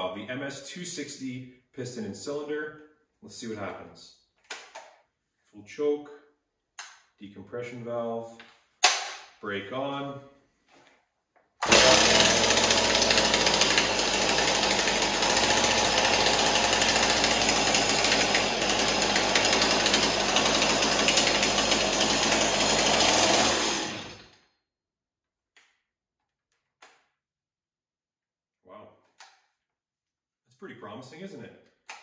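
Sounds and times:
chainsaw running: 11.6s - 24.4s.

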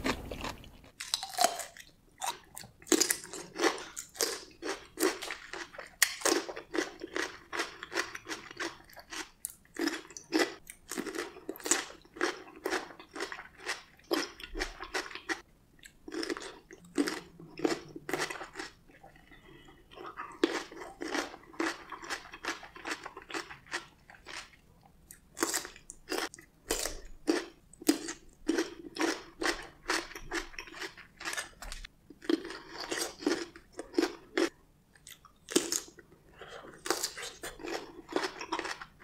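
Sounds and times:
pickles crunching while chewed: 0.0s - 39.0s.

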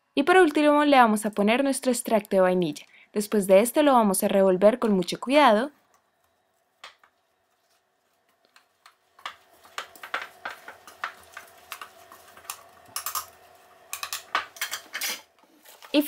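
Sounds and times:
spoon clicking and scraping bowl: 10.8s - 15.2s.

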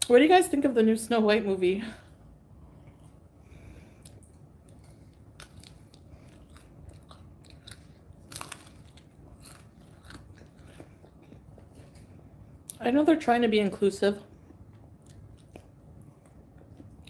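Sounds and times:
person chewing crisp cone: 4.0s - 12.8s, 14.4s - 17.0s.

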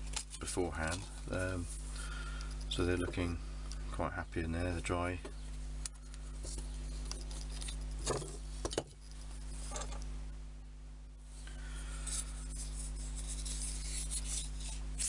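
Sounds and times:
light rubbing and scratching: 0.0s - 3.3s, 6.3s - 10.0s, 11.9s - 15.0s
steady low hum: 0.0s - 15.0s.

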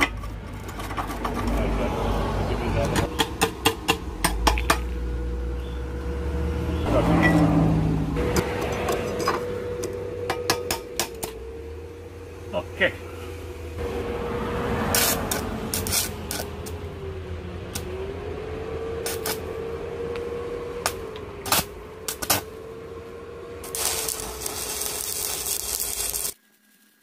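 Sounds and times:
power tool motor whining: 19.0s - 26.4s.

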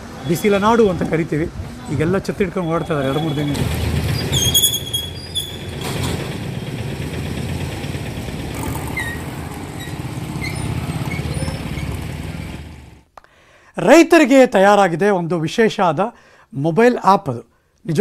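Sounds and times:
vehicle engines rumbling: 0.0s - 13.1s
short high squeaks: 4.2s - 5.9s, 8.5s - 12.2s.

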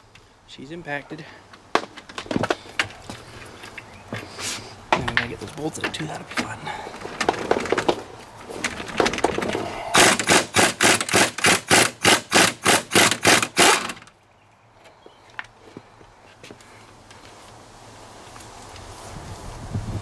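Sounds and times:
impact wrench hammering: 10.0s - 14.0s.

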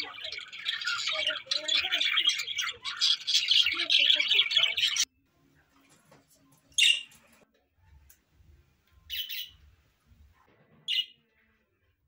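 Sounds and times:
budgerigars chirping: 0.0s - 5.0s, 9.1s - 9.5s.

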